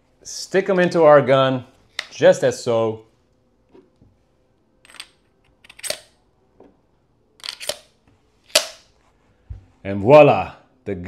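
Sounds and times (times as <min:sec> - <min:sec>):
pistol loading clicks: 0:04.8 - 0:06.2, 0:07.4 - 0:07.9, 0:08.5 - 0:08.9.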